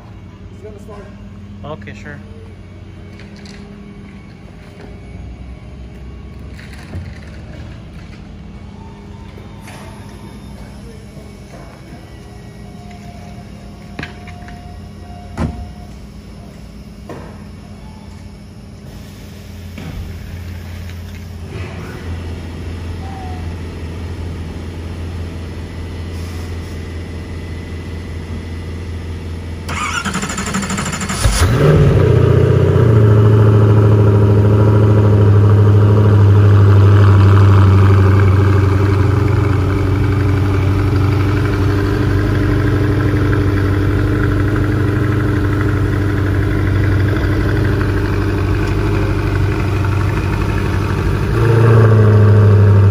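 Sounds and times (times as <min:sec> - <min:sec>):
low hum: 0:00.0 - 0:52.9
car engine starting and idling: 0:28.9 - 0:52.9.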